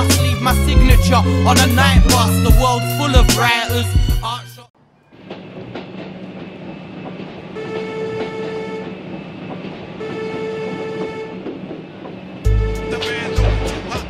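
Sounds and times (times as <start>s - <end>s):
train horn blasts: 7.4s - 9.3s, 9.9s - 11.6s, 12.4s - 14.0s.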